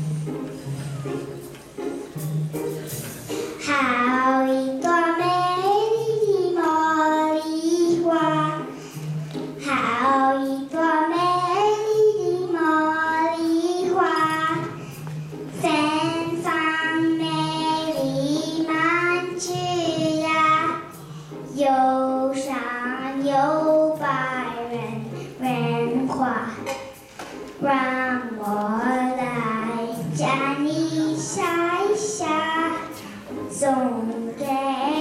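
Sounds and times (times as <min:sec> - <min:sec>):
soft accompaniment low notes: 0:00.0 - 0:35.0
child singing solo: 0:03.6 - 0:08.6, 0:09.6 - 0:14.8, 0:27.6 - 0:35.0.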